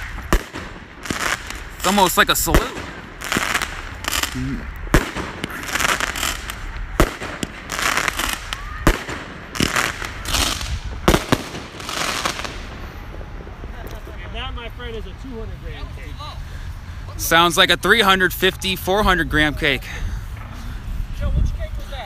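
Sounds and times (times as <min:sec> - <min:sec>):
firework shots: 0:00.0 - 0:14.4
firework crackling: 0:00.0 - 0:16.0.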